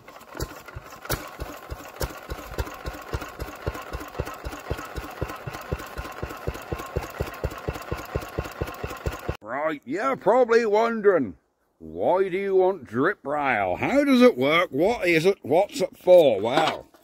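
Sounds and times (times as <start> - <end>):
stationary engine exhaust beat: 0.4 - 9.4.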